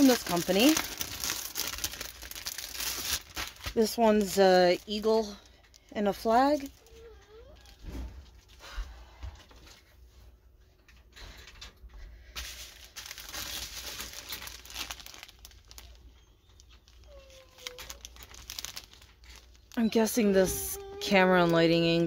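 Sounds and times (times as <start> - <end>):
plastic bags crinkling: 0.0 - 8.6, 12.3 - 22.0
dog whining: 6.8 - 7.8.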